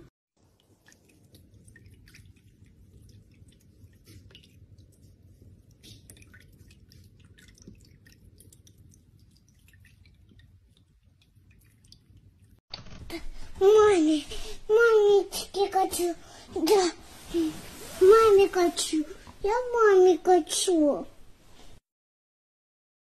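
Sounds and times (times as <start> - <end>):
kitten lapping water: 0.4 - 12.6
water dripping and splashing: 0.4 - 12.6.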